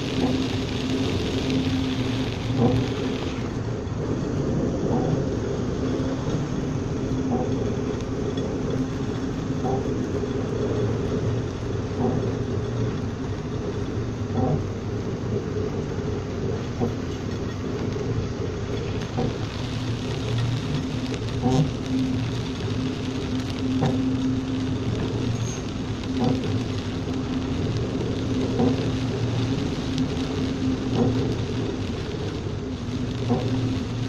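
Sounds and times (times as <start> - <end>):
window wiper ticking: 0.0 - 3.2, 12.0 - 12.4, 14.3 - 14.6, 18.8 - 25.4, 26.0 - 34.0
hiss of wind and spray: 0.0 - 34.0
ship machinery humming: 0.0 - 34.0.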